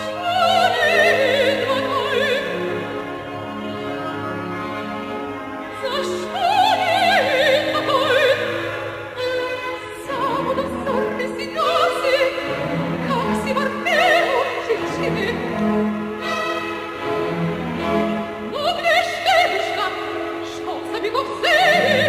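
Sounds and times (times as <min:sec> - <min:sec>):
soprano singing opera: 0:00.0 - 0:02.9, 0:05.8 - 0:15.6, 0:18.4 - 0:22.0
orchestra playing: 0:00.0 - 0:22.0.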